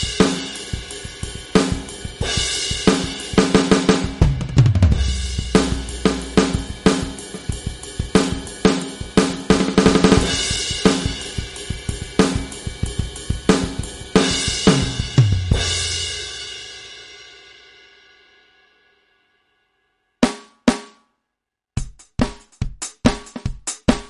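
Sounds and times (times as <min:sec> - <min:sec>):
electronic drum kit groove: 0:00.0 - 0:16.4, 0:21.8 - 0:24.0.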